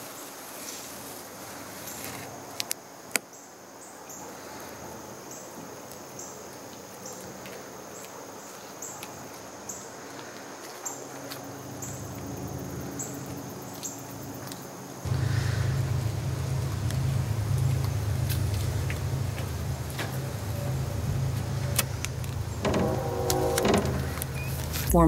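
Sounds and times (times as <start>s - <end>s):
steady hiss: 15.0s - 25.0s
low rumble: 15.1s - 25.0s.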